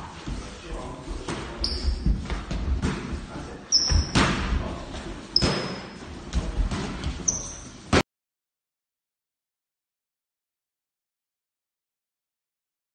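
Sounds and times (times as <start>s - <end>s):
shoes squeaking on wooden floor: 0.2s - 8.0s.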